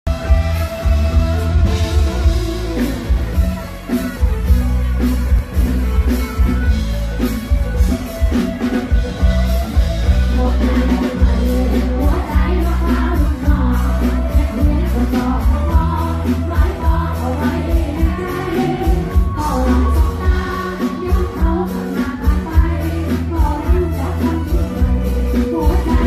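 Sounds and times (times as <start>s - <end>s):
live band playing: 0.0s - 26.0s
drum kit beat: 0.1s - 26.0s
woman singing into microphone: 10.1s - 26.0s.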